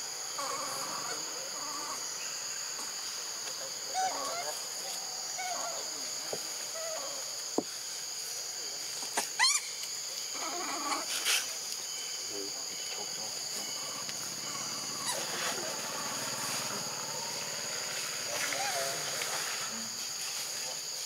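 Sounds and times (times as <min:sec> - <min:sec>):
high-pitched insect drone: 0:00.0 - 0:07.5, 0:08.2 - 0:21.0
animal squeaks: 0:09.4 - 0:09.7, 0:13.8 - 0:15.4.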